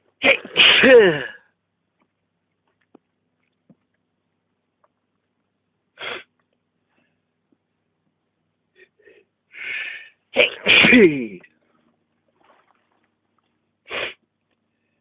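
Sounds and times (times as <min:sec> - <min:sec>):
person sneezing: 0:00.2 - 0:01.4, 0:06.0 - 0:06.3, 0:10.4 - 0:11.4, 0:13.9 - 0:14.2
person gasping: 0:08.8 - 0:10.2
burst of breath: 0:08.9 - 0:10.2.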